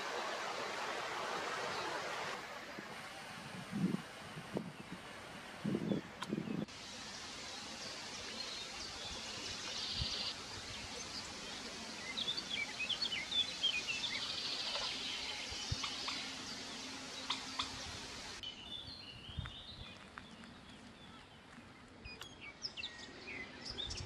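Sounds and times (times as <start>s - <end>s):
steady outdoor hiss: 0.0s - 24.0s
small birds chirping: 7.6s - 24.0s.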